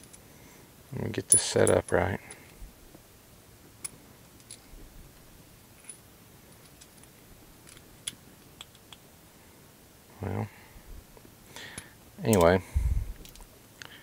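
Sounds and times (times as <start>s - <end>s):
small plastic parts clicking: 13.2s - 13.9s.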